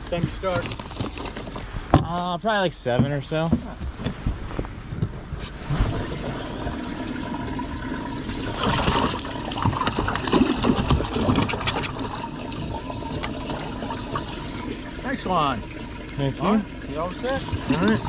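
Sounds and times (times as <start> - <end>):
water sloshing and splashing: 5.2 - 18.0
water trickling: 5.6 - 18.0.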